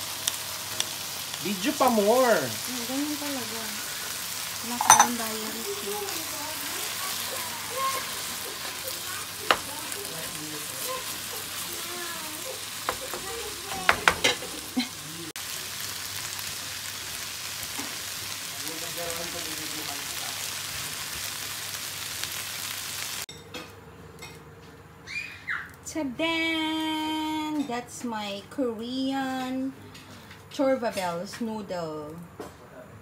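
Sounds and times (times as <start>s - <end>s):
noodles sizzling in a wok: 0.0s - 23.3s
wooden spatula knocking pan: 12.8s - 14.4s.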